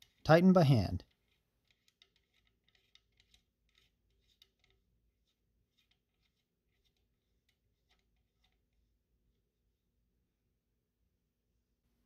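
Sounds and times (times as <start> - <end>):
small ticks and rubbing: 1.0 - 9.0.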